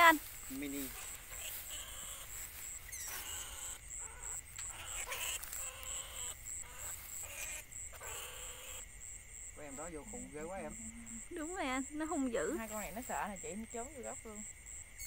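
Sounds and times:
rats squealing: 0.0 - 8.8
insect chirping: 0.0 - 15.0.

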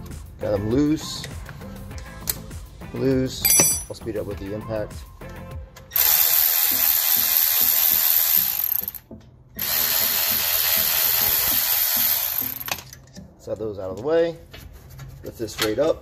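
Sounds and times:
cordless ratchet running: 6.0 - 9.0, 9.6 - 12.8.

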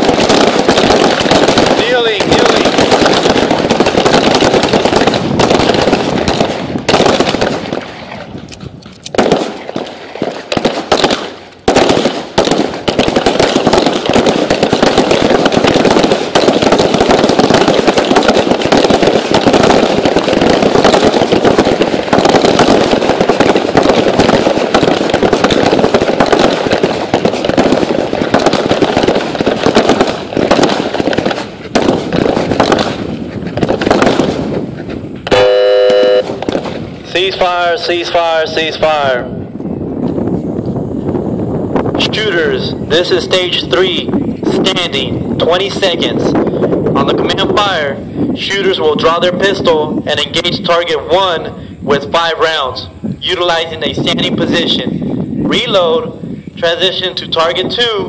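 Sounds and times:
pistols firing: 0.0 - 8.2, 9.1 - 34.7, 35.3 - 39.0.

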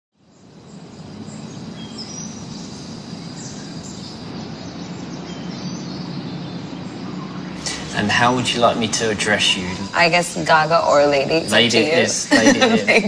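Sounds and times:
bird chirps: 0.3 - 9.0.

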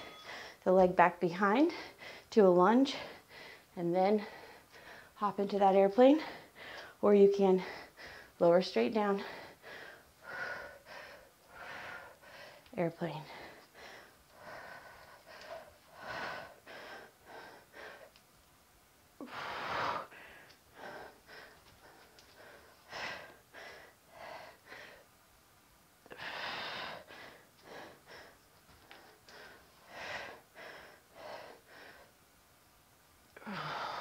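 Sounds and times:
woman breathing hard: 0.0 - 0.6, 2.9 - 5.2, 7.6 - 8.4, 9.1 - 18.2, 19.2 - 25.2, 26.1 - 32.2, 33.4 - 34.0.

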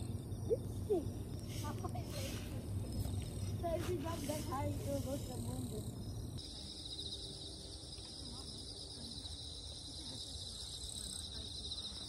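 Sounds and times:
low background rumble: 0.0 - 6.8
crickets chirring: 0.0 - 12.0.

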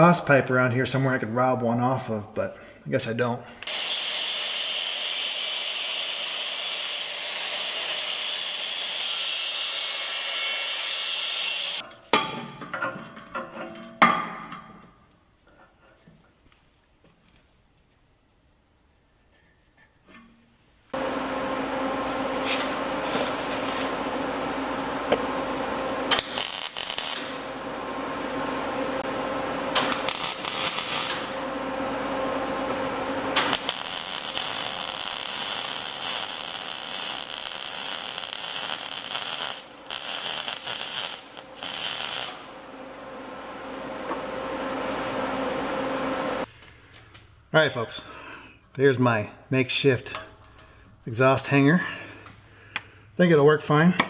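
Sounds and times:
electric arc welding buzz: 3.6 - 11.8, 21.0 - 46.5.

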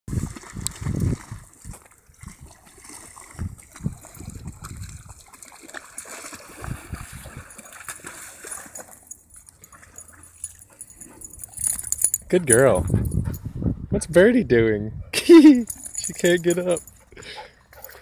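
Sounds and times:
dogs splashing through water: 0.1 - 13.2.

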